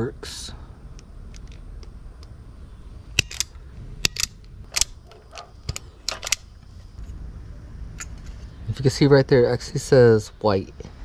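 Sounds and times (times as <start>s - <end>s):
low steady hum: 0.0s - 11.0s
wire stripper clicking: 3.2s - 6.5s.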